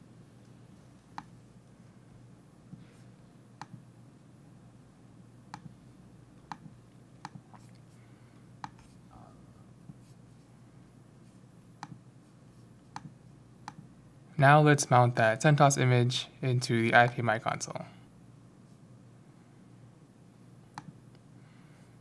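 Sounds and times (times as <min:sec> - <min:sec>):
low background hum: 0:00.0 - 0:22.0
computer mouse clicks: 0:01.1 - 0:01.4, 0:05.5 - 0:05.8, 0:06.5 - 0:07.5, 0:08.6 - 0:08.9, 0:11.8 - 0:12.0, 0:12.9 - 0:13.8, 0:20.7 - 0:21.0.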